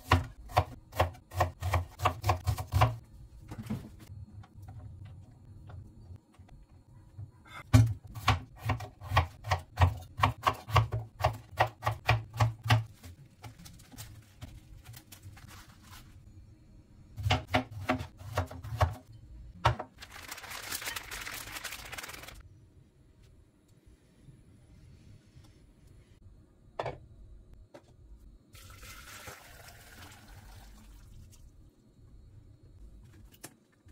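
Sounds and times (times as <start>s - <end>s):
knife chopping on plastic board: 7.7s - 12.9s.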